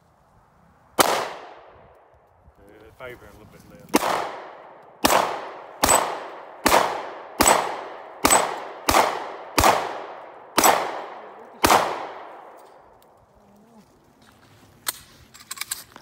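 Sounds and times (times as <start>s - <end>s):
handgun shots with echo: 1.0s - 1.7s, 3.9s - 12.8s.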